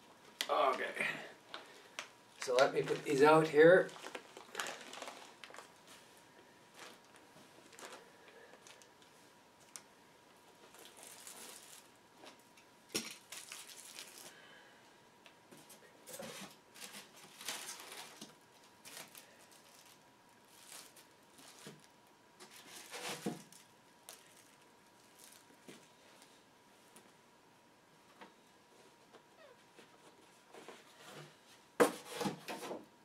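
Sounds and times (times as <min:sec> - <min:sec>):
packaging rustling and crinkling: 0:01.5 - 0:14.4, 0:15.6 - 0:26.3.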